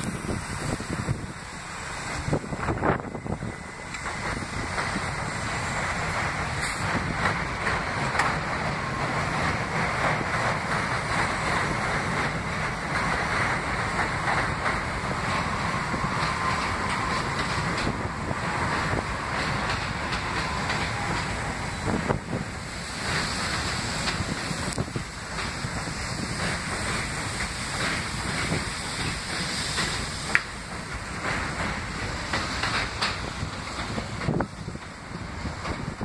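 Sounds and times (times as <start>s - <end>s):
train rumbling on steel track: 0.0s - 36.0s
wheels clicking over rail joints: 2.3s - 36.0s.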